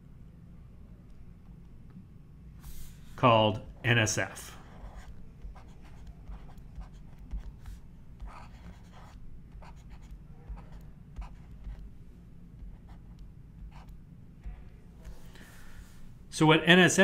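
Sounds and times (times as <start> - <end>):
low steady hum: 0.0 - 17.0
stylus scratching on drawing tablet: 2.6 - 15.3.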